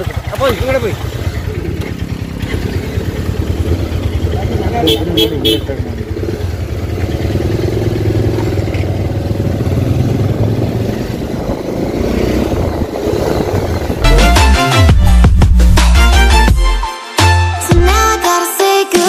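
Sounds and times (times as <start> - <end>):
motorcycle engine running: 0.0 - 16.5
music: 14.0 - 19.0.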